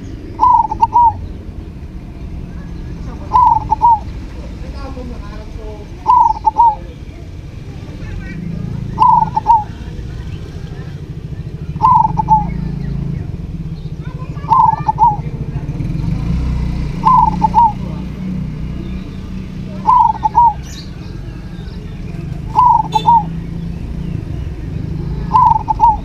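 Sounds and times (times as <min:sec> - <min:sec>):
dove cooing: 0:00.0 - 0:01.9, 0:02.6 - 0:04.3, 0:06.0 - 0:07.0, 0:08.7 - 0:12.8, 0:14.1 - 0:15.5, 0:16.9 - 0:18.0, 0:19.2 - 0:26.0.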